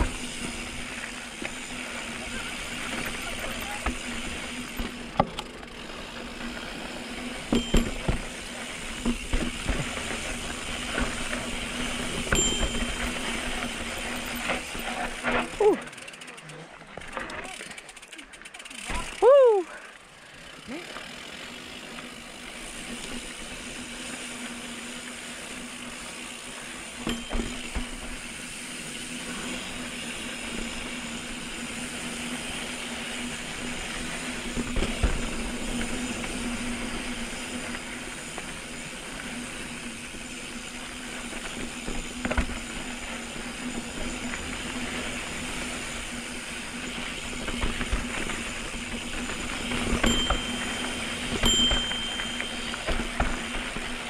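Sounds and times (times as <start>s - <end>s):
bike rattling over rocks: 0.0s - 19.2s, 21.0s - 54.0s
bike tyres on dirt trail: 0.0s - 54.0s.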